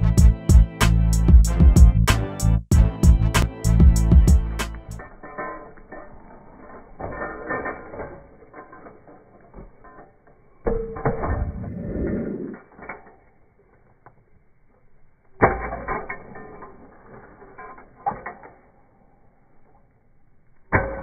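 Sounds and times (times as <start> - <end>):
scooter wheels rolling on asphalt: 5.1 - 10.7.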